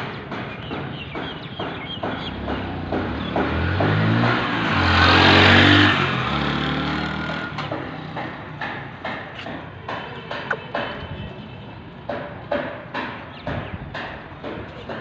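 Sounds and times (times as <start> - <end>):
vehicle passing by: 2.4 - 8.4
sharp clicks and taps: 7.6 - 11.0.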